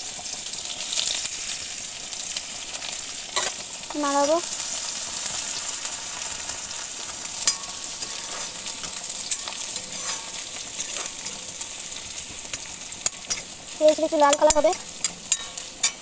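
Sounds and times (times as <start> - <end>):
onions sizzling in oil: 0.0 - 16.0
metal spatula clicking on pan: 7.4 - 8.1, 8.9 - 10.2, 12.5 - 16.0.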